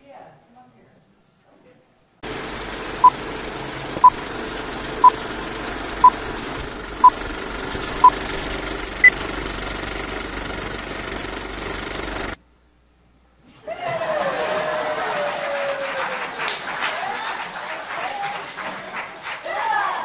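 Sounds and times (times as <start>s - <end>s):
film projector rattle and hum: 2.2s - 12.4s.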